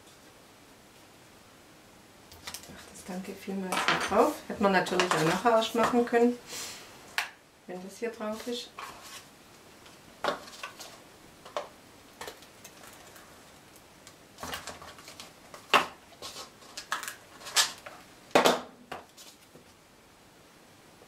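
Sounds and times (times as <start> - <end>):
paper rustling: 8.3 - 9.3, 14.4 - 18.0, 19.1 - 19.6.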